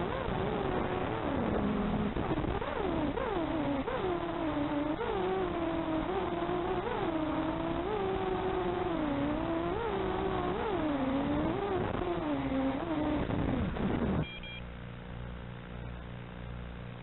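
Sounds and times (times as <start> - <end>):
drone motors whining: 0.0 - 14.3
steady electrical hum: 0.0 - 17.0.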